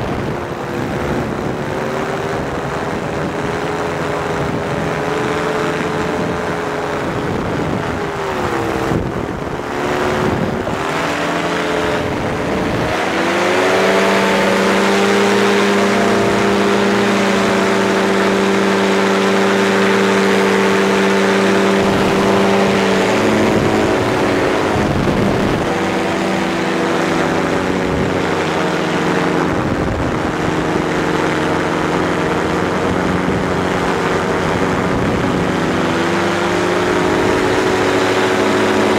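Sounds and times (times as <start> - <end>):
engine and propeller running: 0.0 - 38.9
wind rush: 0.0 - 38.9.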